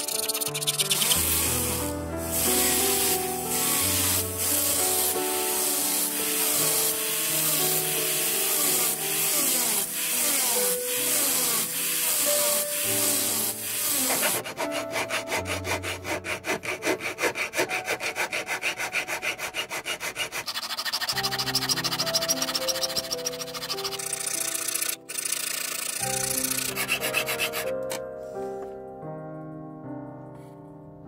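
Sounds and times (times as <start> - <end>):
rotary tool high hiss: 0.0 - 14.4, 20.4 - 27.6
soft piano music: 0.0 - 20.3, 21.0 - 31.0
hand file strokes on metal: 0.0 - 25.0, 25.7 - 28.0.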